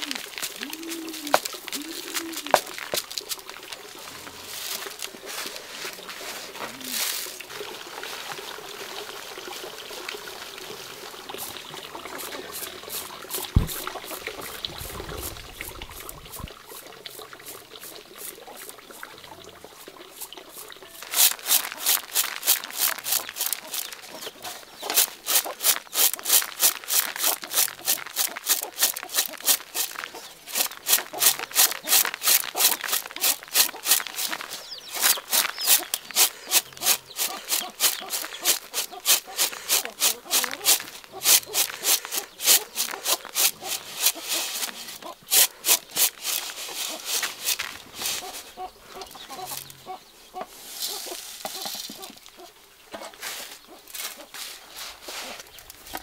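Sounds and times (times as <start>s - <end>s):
rice rattling in winnowing tray: 0.0s - 7.4s, 20.1s - 48.7s, 50.6s - 52.4s.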